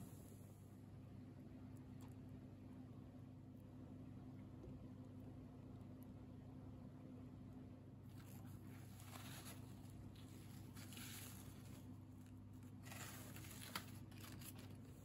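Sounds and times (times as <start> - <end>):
low steady hum: 0.0 - 15.0
brittle carbon rustling and crumbling: 8.1 - 15.0.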